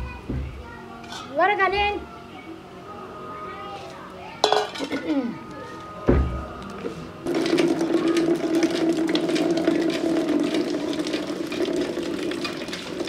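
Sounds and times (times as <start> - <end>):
water pouring into container: 7.3 - 13.0.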